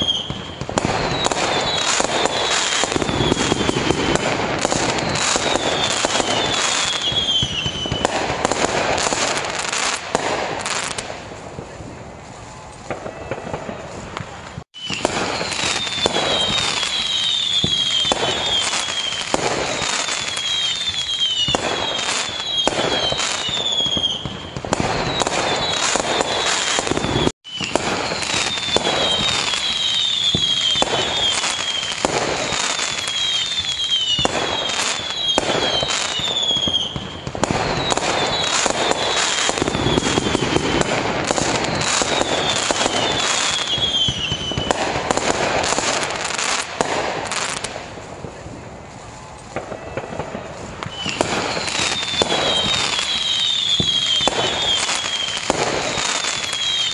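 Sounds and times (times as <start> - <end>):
falling firework whistles: 0.0 - 56.9
firework bursts and bangs: 0.0 - 56.9.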